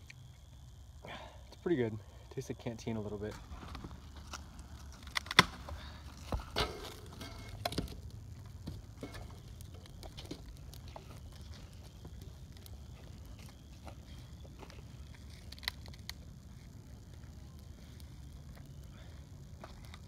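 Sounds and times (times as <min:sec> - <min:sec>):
faint clicks and crackles: 0:00.0 - 0:01.6, 0:02.3 - 0:20.0
steady low rumble: 0:00.0 - 0:20.0.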